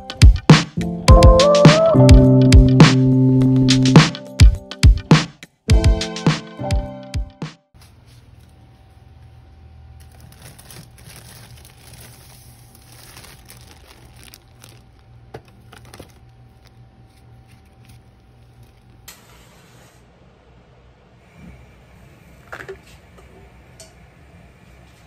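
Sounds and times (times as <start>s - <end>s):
refrigerator hum: 7.8s - 19.2s
plastic packaging crinkling: 10.0s - 19.1s.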